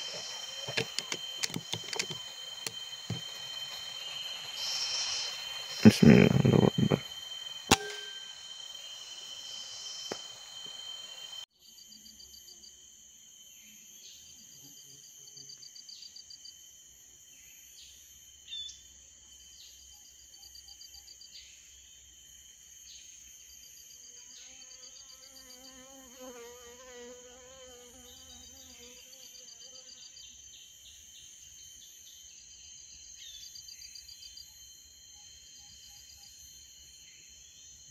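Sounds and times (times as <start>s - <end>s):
high-pitched insect buzz: 0.0s - 18.8s, 22.4s - 37.9s
insects chirping: 0.0s - 37.9s
low wavering insect call: 0.0s - 37.9s.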